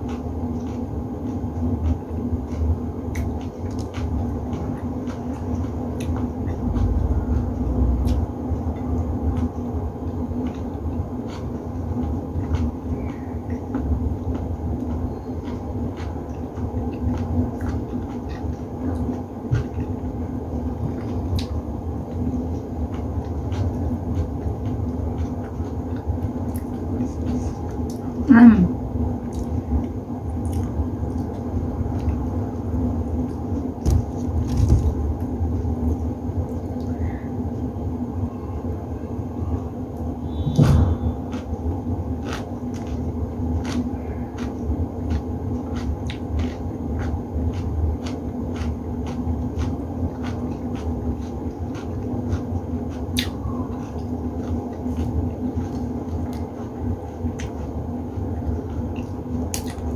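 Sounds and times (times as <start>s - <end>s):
appliance humming: 0.0s - 59.9s
loud knock: 40.4s - 41.1s.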